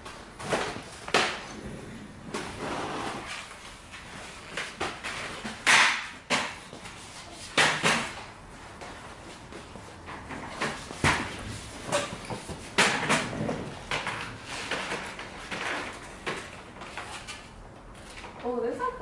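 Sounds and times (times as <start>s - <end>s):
balloons rustling and scraping: 0.3s - 5.1s.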